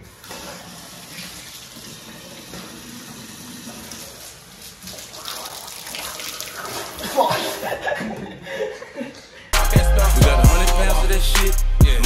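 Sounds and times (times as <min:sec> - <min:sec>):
faucet running into metal sink: 0:00.0 - 0:07.7.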